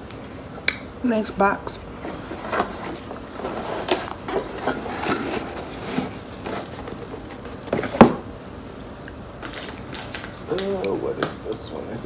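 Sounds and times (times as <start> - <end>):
cardboard box rustling: 2.0 - 8.1.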